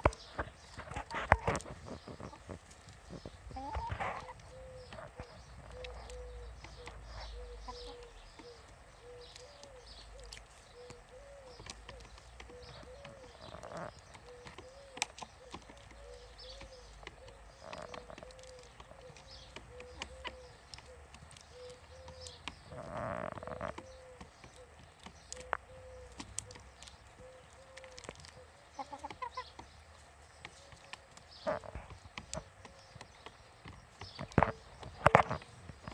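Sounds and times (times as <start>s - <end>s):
hens clucking: 0.0s - 35.9s
beaks pecking on plastic tray: 10.9s - 35.9s.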